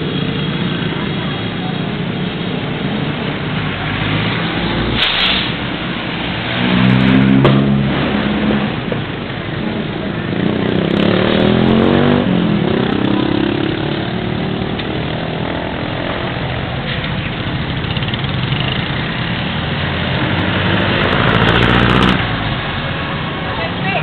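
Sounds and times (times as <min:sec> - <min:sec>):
traffic engines idling and running: 0:00.0 - 0:24.0
motorcycle passing close by: 0:10.4 - 0:16.4, 0:19.9 - 0:22.4.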